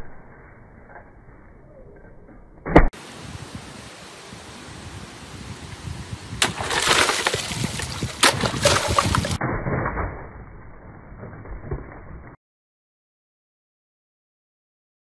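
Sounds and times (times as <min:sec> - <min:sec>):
water splashing: 0:06.4 - 0:10.0.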